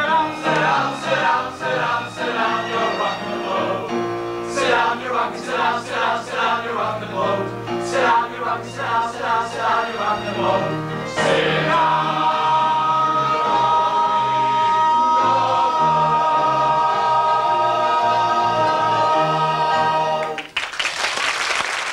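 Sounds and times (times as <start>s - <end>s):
man and chorus singing with band: 4.5s - 20.2s.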